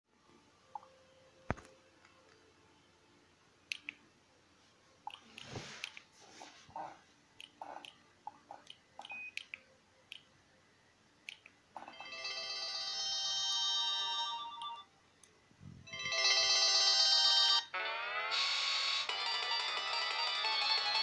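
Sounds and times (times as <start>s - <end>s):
polyphonic ringtone melodies: 11.8s - 14.9s, 15.9s - 21.0s.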